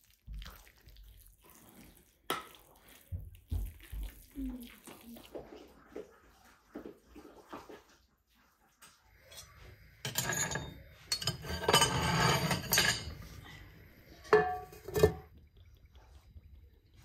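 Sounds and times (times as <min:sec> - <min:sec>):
metal clattering on stove top: 0:09.3 - 0:13.4, 0:14.2 - 0:15.3.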